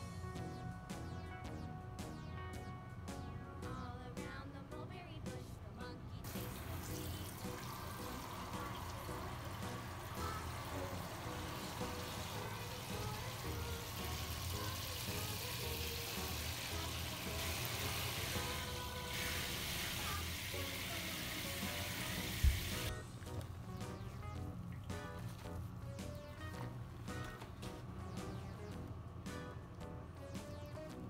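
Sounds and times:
shower head spraying water: 6.3 - 22.9.

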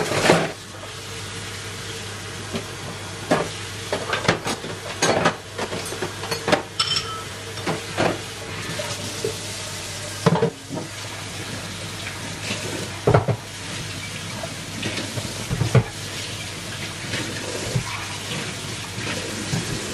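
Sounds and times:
dishes and pots knocking: 4.1 - 8.2
tap running into sink: 12.5 - 13.5, 14.8 - 16.0.

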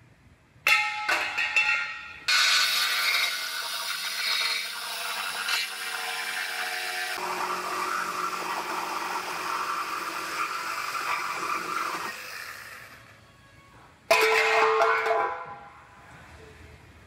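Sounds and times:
reciprocating saw cutting steel: 2.3 - 13.0.

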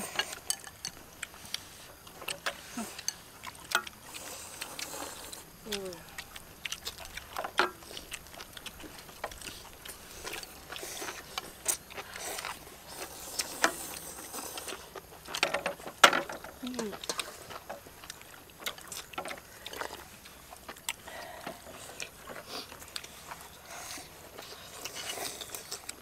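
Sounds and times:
utensils clinking against bowls: 0.0 - 1.0
slurping and chewing: 0.0 - 26.0.

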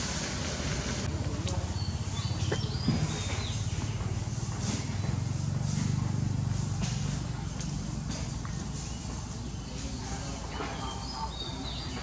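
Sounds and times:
small engine running: 0.0 - 9.4.

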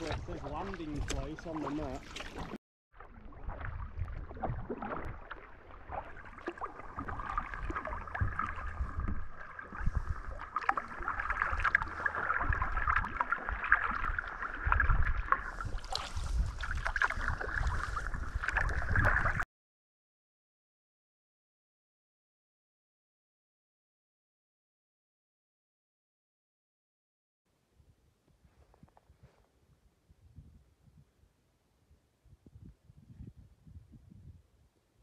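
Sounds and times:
wind rumbling on microphone: 0.0 - 2.2, 3.2 - 19.4, 27.7 - 35.0
kayak paddle splashing: 0.0 - 19.4
water washing along hull: 0.0 - 19.4.

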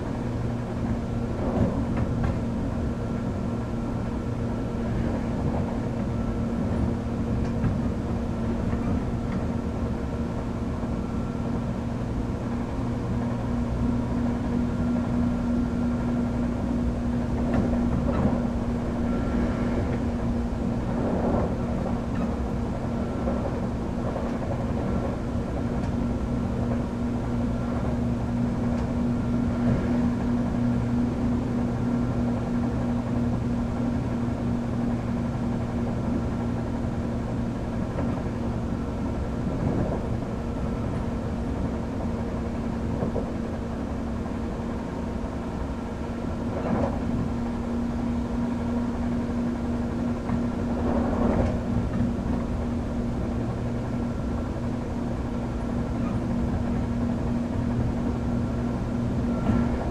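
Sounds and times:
constant hum: 0.0 - 59.9
train running gear rumble: 0.0 - 59.9.

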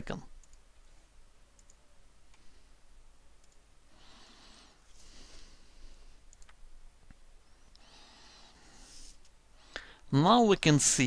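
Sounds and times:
room hiss: 0.0 - 11.0
computer mouse clicks: 0.4 - 0.6, 1.6 - 2.4, 3.4 - 3.6, 6.3 - 6.6.

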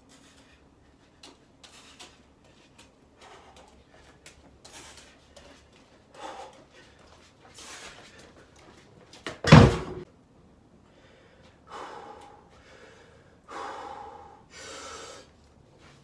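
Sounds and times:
man breathing hard: 0.0 - 2.3, 3.1 - 8.5, 10.8 - 15.5
heavy metal thud on concrete: 9.4 - 10.0.

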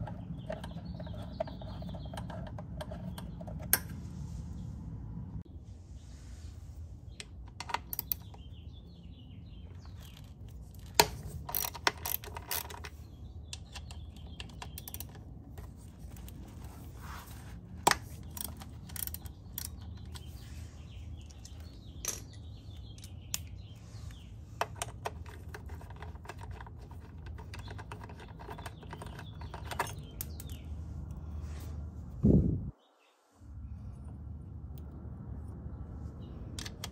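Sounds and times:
ratchet wrench clicking: 10.9 - 12.9, 17.9 - 20.2.

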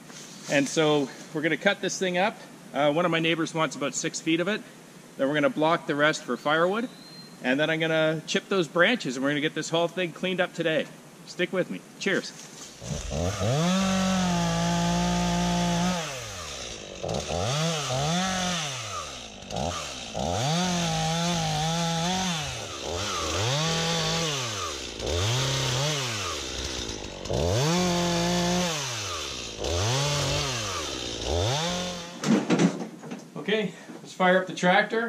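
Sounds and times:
chainsaw cutting wood: 12.6 - 32.5.

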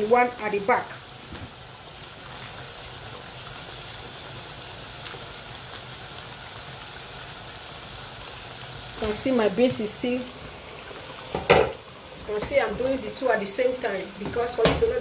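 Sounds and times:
slices deep-frying in oil: 0.0 - 15.0.

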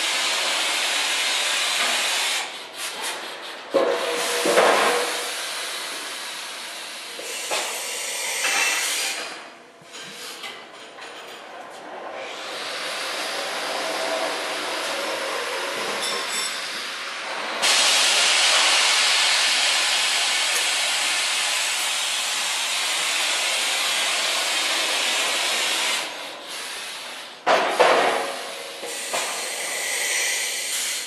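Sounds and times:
air flow hissing: 0.2 - 9.4, 12.3 - 27.4, 28.2 - 31.0.

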